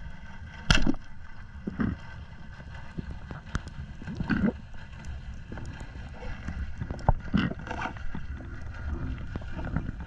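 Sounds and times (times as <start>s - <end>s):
small clicks and crackles: 0.0s - 10.0s
underwater low rumble: 0.0s - 10.0s.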